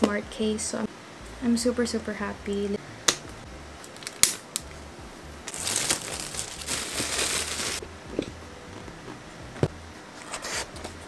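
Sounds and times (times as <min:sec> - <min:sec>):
plastic wrap tearing and crinkling: 0:03.8 - 0:04.7, 0:05.5 - 0:07.8.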